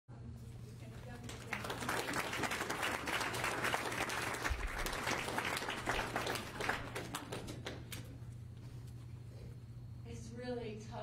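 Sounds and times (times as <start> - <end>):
audience applauding: 0.9 - 8.1.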